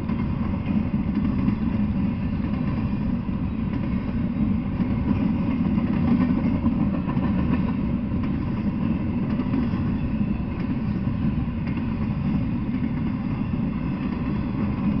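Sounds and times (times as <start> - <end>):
freight train wheels rumbling: 0.0 - 15.0.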